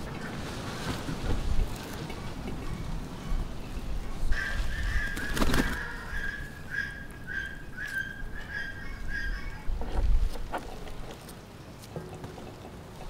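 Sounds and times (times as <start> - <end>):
bird whistling: 4.4 - 9.7.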